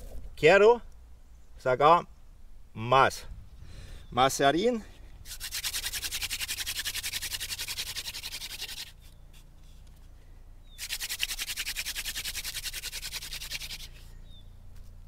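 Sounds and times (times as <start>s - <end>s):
wooden spindle scratching in fireboard: 5.2s - 10.1s, 10.8s - 14.1s.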